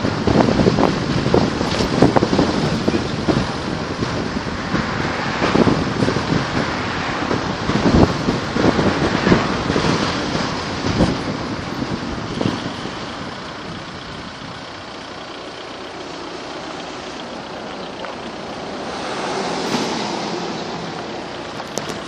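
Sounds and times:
car road noise: 0.0s - 22.0s
vehicle passing close by: 1.2s - 12.2s, 16.0s - 22.0s.

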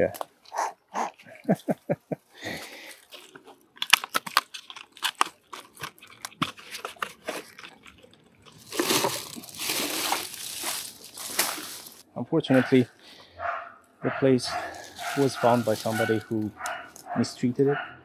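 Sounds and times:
rubbish bag crinkling: 2.7s - 12.0s, 14.5s - 17.1s
plastic litter crunching: 2.8s - 12.0s, 14.5s - 17.1s.

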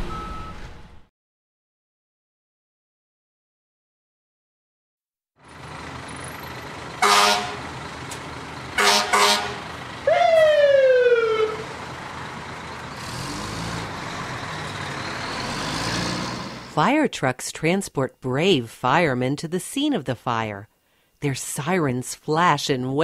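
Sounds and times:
low engine rumble: 5.4s - 15.5s
air horn blasts: 7.0s - 7.7s, 8.8s - 10.2s
siren wail falling in pitch: 8.8s - 11.8s.

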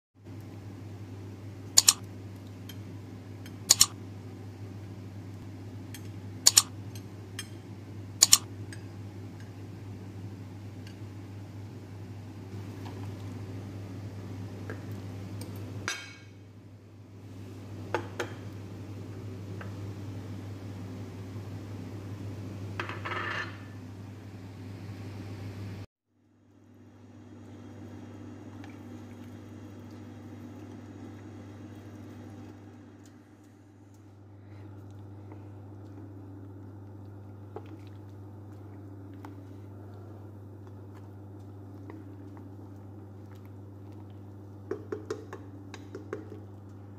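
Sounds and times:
low background hum: 0.2s - 46.9s
spoon stirring wet meat: 1.8s - 2.0s, 3.7s - 3.9s, 6.0s - 7.6s
spoon knocking against pot: 44.7s - 46.4s.

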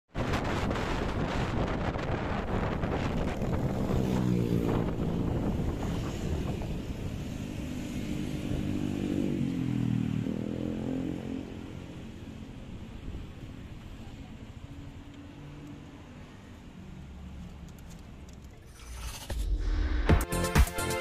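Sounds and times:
wind buffeting microphone: 0.2s - 8.9s.

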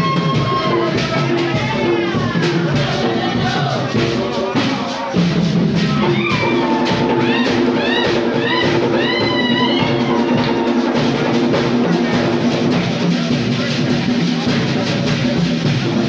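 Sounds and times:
held sung tones: 0.0s - 12.6s
drumming steady beat: 0.0s - 16.0s
shrill rising-and-falling calls: 5.9s - 11.0s.

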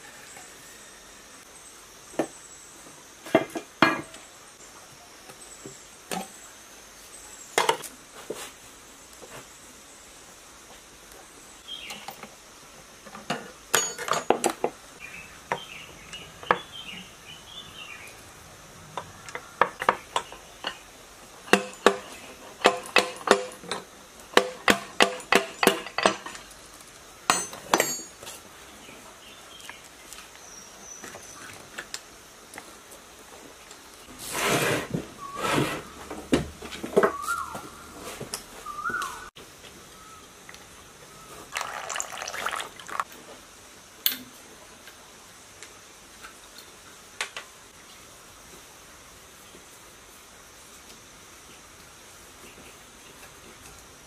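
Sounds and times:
metal tools knocking on engine block: 27.3s - 28.2s.

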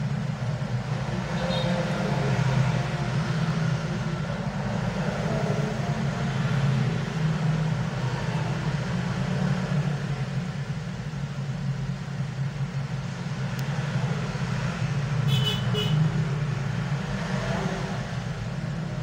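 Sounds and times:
road traffic hum: 0.0s - 19.0s.

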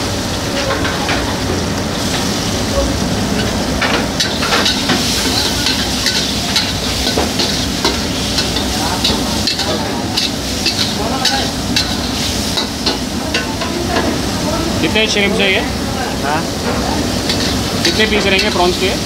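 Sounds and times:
prawns sizzling in hot oil: 0.0s - 19.0s
metal ladle scraping wok: 17.2s - 18.8s.

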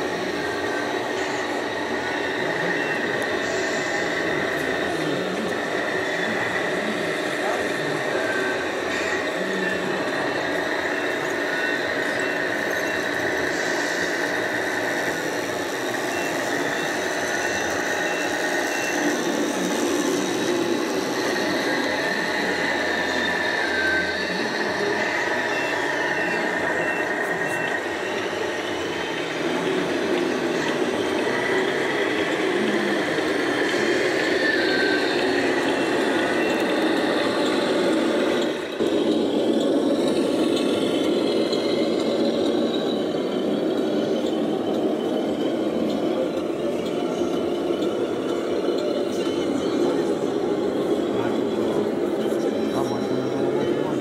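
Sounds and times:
reversing beeper: 0.0s - 54.0s.

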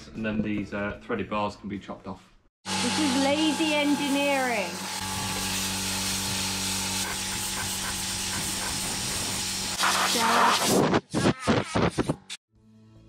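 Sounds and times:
air blow gun hissing: 4.1s - 10.8s.

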